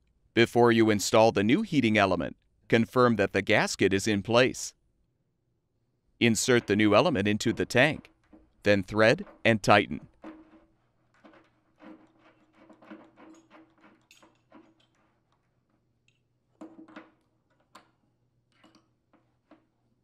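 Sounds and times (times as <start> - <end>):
metal scraping: 6.2 - 15.5
small metal clicks: 13.3 - 19.7.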